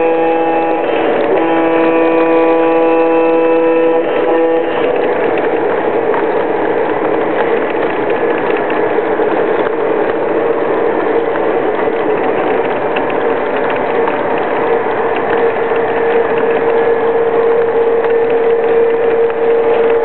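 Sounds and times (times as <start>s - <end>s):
light clicking of wheels: 0.0s - 20.0s
model train wheels rumbling on rail: 0.0s - 20.0s.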